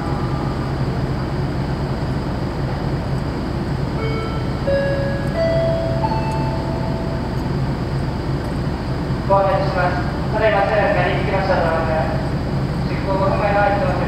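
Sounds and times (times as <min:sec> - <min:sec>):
ship diesel machinery humming: 0:00.0 - 0:14.0
chime-like notes: 0:04.0 - 0:07.3.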